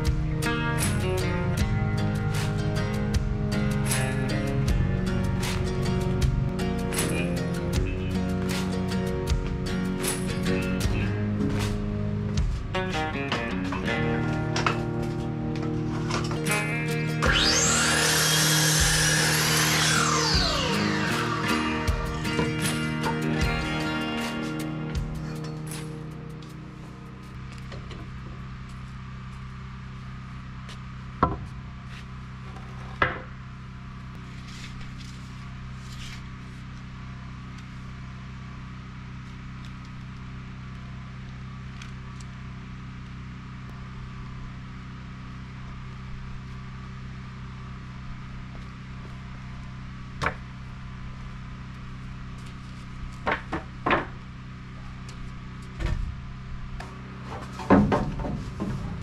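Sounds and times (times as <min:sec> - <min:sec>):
steady low hum: 0:00.0 - 0:59.0
lumber and tools knocking: 0:31.2 - 0:31.5, 0:53.2 - 0:54.2, 0:57.2 - 0:59.0.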